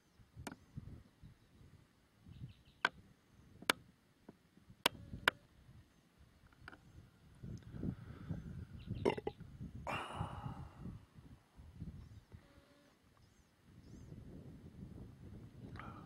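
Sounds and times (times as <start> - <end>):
wind on microphone: 0.3 - 2.7, 6.8 - 12.7, 13.7 - 16.0.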